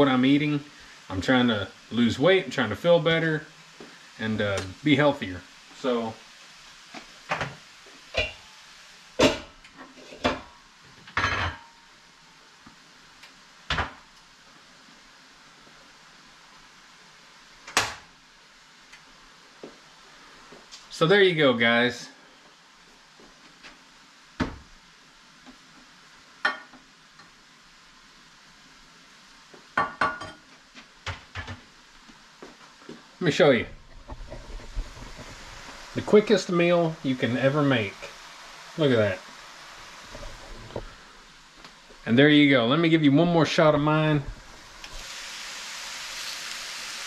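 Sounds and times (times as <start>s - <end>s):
ham sizzling in a skillet: 0.0s - 47.0s
pots and pans clattering: 7.3s - 8.5s, 9.2s - 11.8s.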